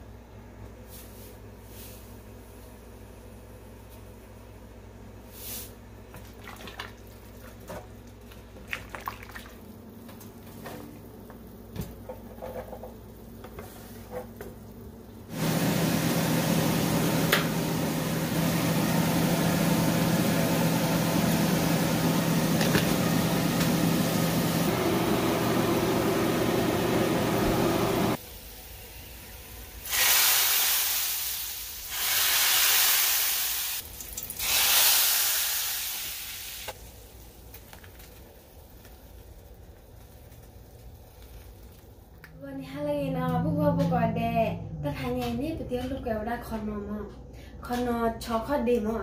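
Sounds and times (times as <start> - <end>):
garlic sizzling in hot oil: 28.2 - 42.2.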